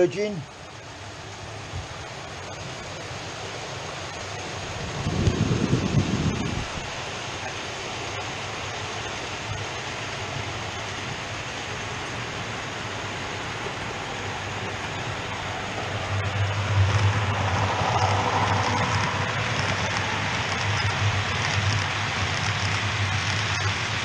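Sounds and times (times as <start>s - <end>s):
low motor hum: 8.8s - 24.0s
model train wheels rattling on track: 16.8s - 24.0s.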